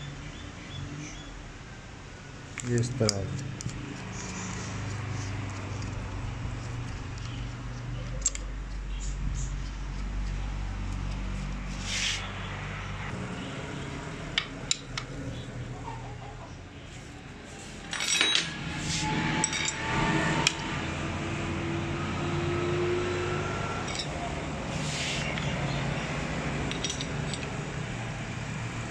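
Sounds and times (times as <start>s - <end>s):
metal tool clinking on metal: 17.9s - 18.6s, 19.4s - 20.6s, 23.8s - 24.2s, 26.7s - 27.5s.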